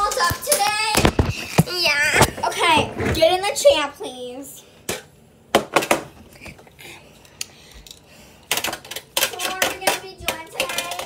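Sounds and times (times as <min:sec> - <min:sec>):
children's voices: 0:00.0 - 0:04.6, 0:09.2 - 0:11.0.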